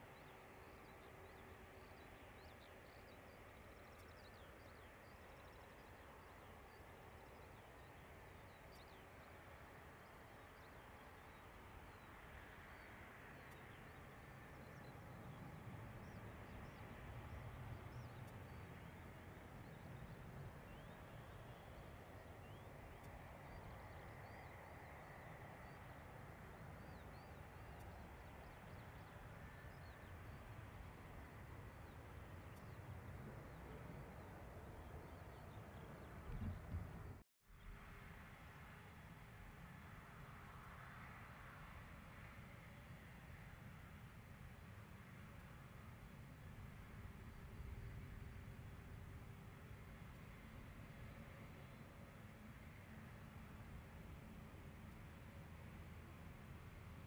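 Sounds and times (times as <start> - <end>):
small birds chirping: 0.1 - 37.2
jet engines idling rumble: 11.2 - 37.2.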